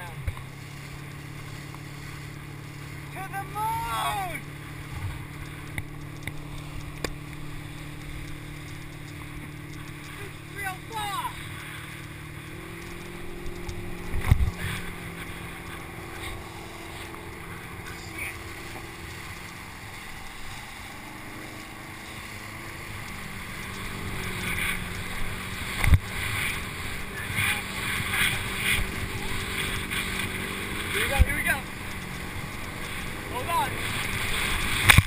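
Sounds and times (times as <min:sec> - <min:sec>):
boat engine droning: 0:00.0 - 0:35.0
rushing water: 0:00.0 - 0:35.0
wind on microphone: 0:11.4 - 0:31.4.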